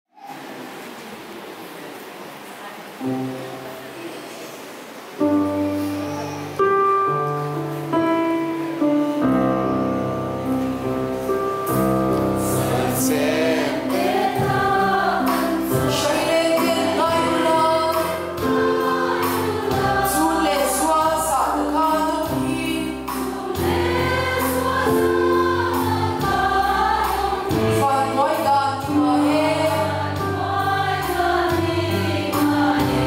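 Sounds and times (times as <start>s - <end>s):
held instrumental chords: 5.2s - 33.0s
women's choir singing a hymn: 9.7s - 33.0s.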